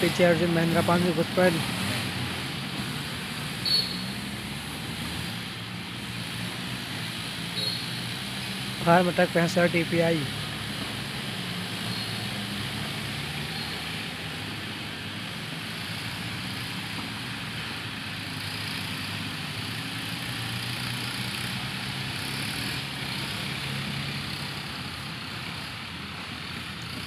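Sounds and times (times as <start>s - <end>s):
tractor engines droning: 0.0s - 27.0s.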